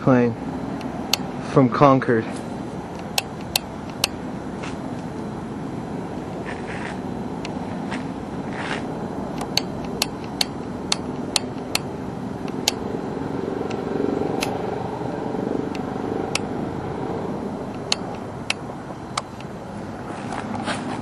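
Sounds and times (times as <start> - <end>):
airplane engine drone: 0.0 - 21.0
sharp clicks: 2.9 - 4.2, 9.4 - 12.8, 17.6 - 19.5.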